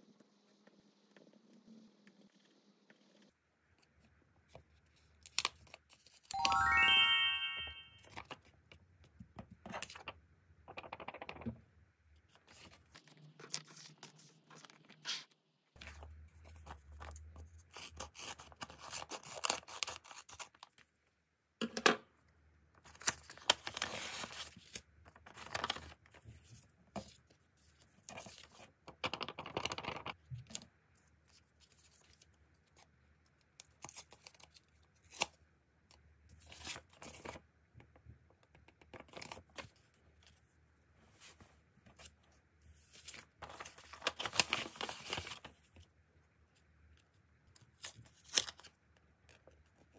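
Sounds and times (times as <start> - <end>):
paper rustling and tearing: 43.0 - 45.5.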